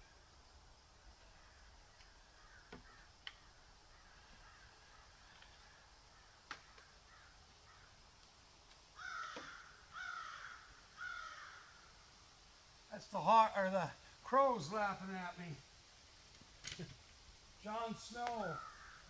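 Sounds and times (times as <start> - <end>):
distant bird calls: 0.0 - 8.2, 8.8 - 12.2, 16.7 - 19.0
crow cawing: 1.2 - 3.2, 3.9 - 8.0, 9.0 - 11.9, 18.4 - 19.0
faint clicks: 1.9 - 3.5.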